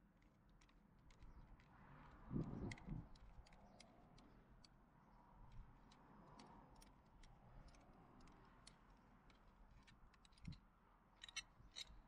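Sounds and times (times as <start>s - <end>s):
allen key and metal hardware clicking: 11.2s - 12.0s.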